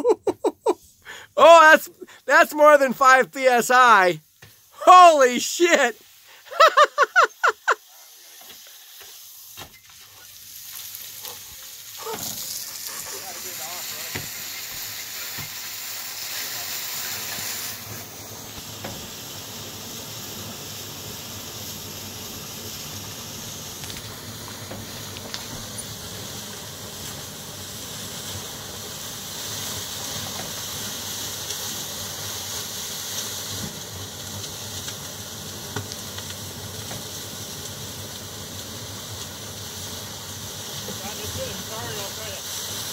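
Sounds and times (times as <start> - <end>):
water gushing and splashing: 8.1 - 35.7.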